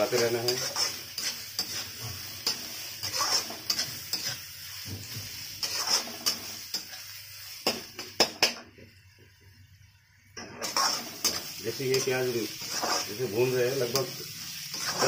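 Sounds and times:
spatula scraping metal pan: 0.0 - 4.4, 5.6 - 7.0, 10.6 - 15.0
onions sizzling in oil: 0.0 - 15.0.

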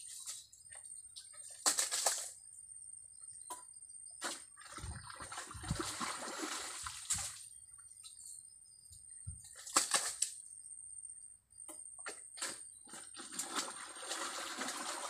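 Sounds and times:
mud and water squelching: 4.2 - 7.4.

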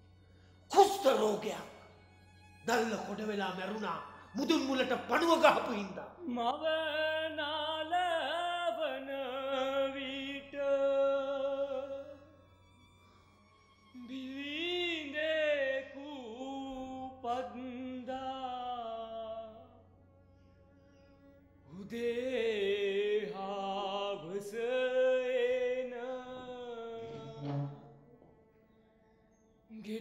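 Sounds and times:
person singing with vibrato: 21.7 - 28.0.

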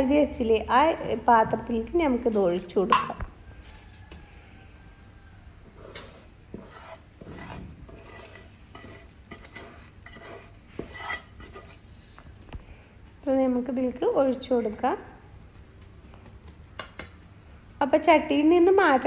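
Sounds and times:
wooden spatula scraping a pan: 5.6 - 12.2.

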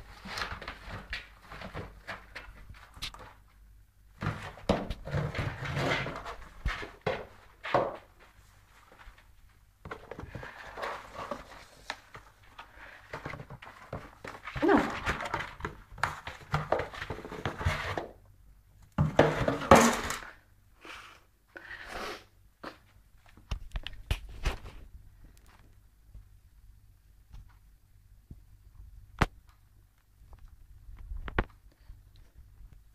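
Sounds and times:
cardboard box scraping on floor: 4.2 - 8.1, 10.0 - 12.0.

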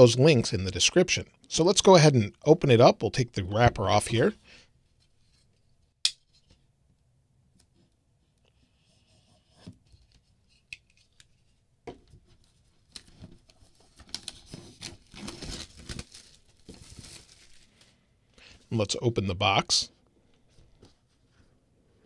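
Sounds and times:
plastic wrap crinkling and tearing: 12.9 - 18.0.

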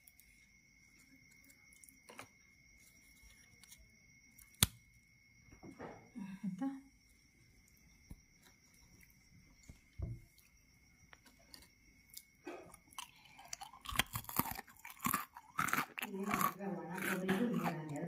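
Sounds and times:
crisp crackers crunching: 11.2 - 18.0.

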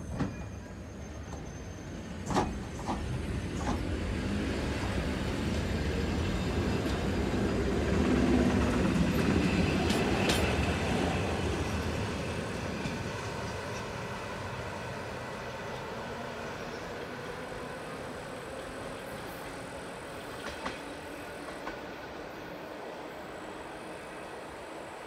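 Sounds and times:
train wheels clicking on rails: 2.2 - 14.4, 18.1 - 22.1.

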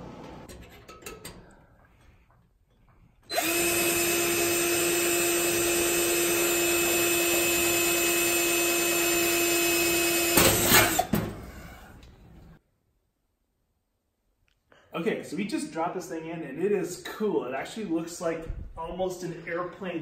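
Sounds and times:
cordless drill drilling metal: 3.3 - 11.7.

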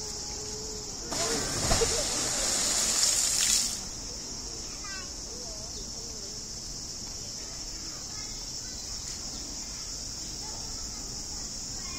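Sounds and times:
cicadas buzzing: 0.0 - 11.9.

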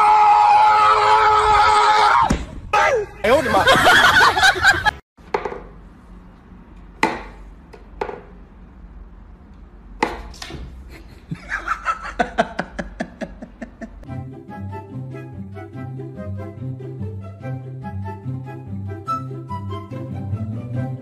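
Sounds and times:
music: 14.0 - 21.0.

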